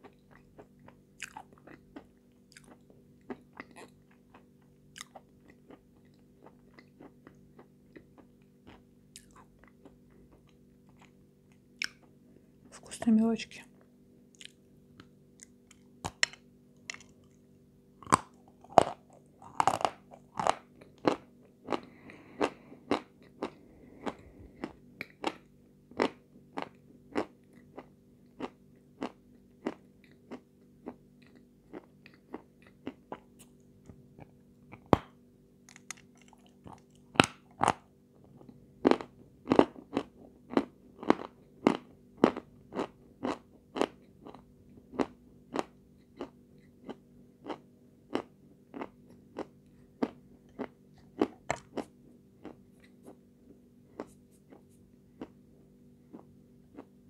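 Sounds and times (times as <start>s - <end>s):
chalk crunching while chewing: 35.7s - 53.2s, 53.9s - 55.4s.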